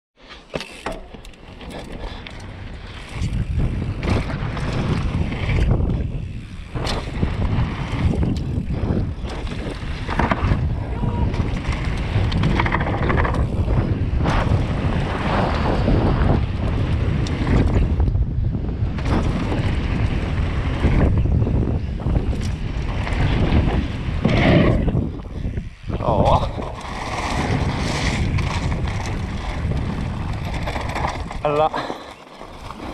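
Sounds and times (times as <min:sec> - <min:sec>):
bike rattles and knocks: 0:00.3 - 0:32.9
wind buffeting microphone: 0:02.0 - 0:31.9
tyre roar on gravel: 0:18.9 - 0:32.9.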